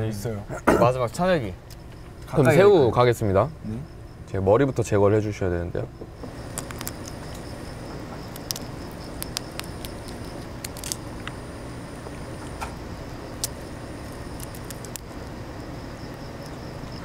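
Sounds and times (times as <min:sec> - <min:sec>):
shrimp shell crackling and snapping: 0:06.5 - 0:07.5, 0:08.2 - 0:11.4, 0:13.4 - 0:15.3.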